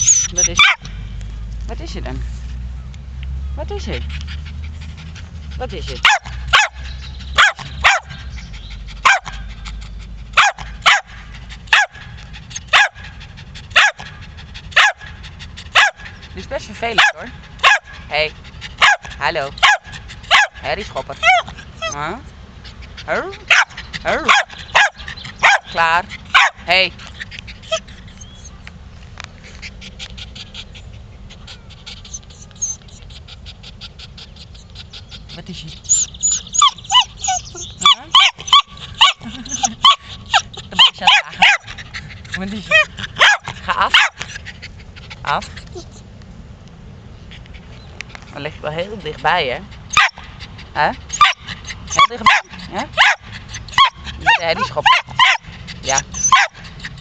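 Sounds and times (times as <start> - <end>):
dog barking: 0.5 - 0.8, 6.0 - 6.8, 7.4 - 8.1, 9.0 - 9.4, 10.4 - 11.1, 12.7 - 13.0, 13.8 - 14.0, 14.8 - 15.1, 15.8 - 16.1, 17.0 - 18.0, 18.8 - 20.6, 23.5 - 25.8, 26.4 - 26.6, 40.8 - 41.7, 43.2 - 44.2, 52.0 - 53.2, 53.8 - 55.4, 56.2 - 56.6
dog panting fast: 3.6 - 28.5, 29.4 - 46.0, 47.2 - 57.0.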